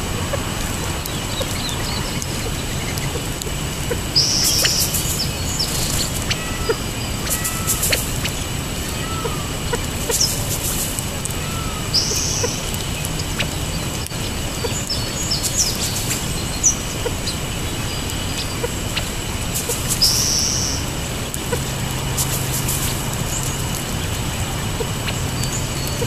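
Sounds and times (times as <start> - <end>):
harsh buzzy bird notes: 0.0 - 26.0
steady low hum: 0.0 - 26.0
bird chirps and ticks: 0.1 - 24.2, 24.8 - 26.0
soft bird call notes: 0.2 - 20.9.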